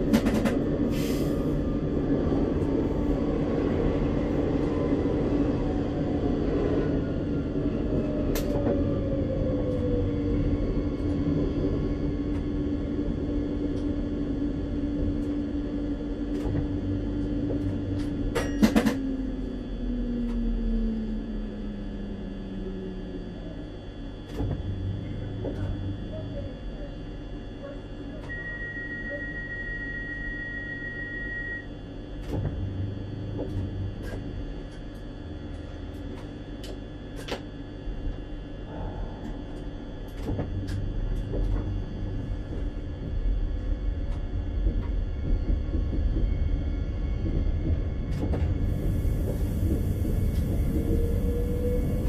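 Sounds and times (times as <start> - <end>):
train rumble: 0.0 - 28.4, 29.0 - 52.0
high beep: 28.3 - 31.7.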